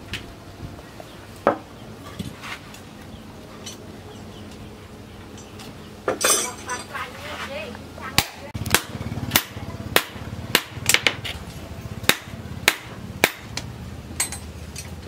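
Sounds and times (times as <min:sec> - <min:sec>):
hammer striking hot steel on anvil: 0:08.2 - 0:11.3, 0:12.0 - 0:14.4.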